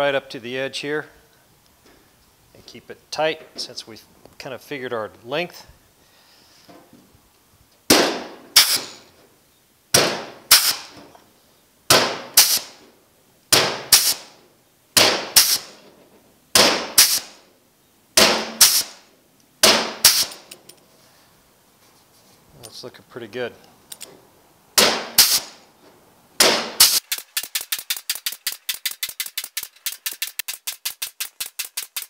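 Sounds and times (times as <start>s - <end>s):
sharp metallic snaps of flanging tool: 26.8s - 32.0s.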